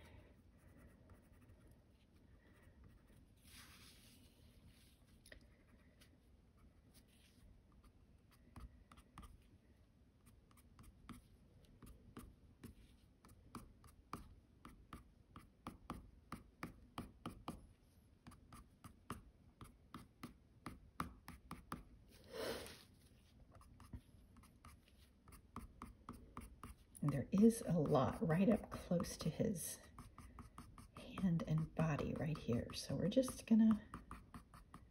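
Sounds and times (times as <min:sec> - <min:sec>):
pencil scraping on paper: 0:00.3 - 0:04.9, 0:23.5 - 0:34.9
pencil ticking on paper: 0:10.2 - 0:21.9, 0:23.5 - 0:34.9.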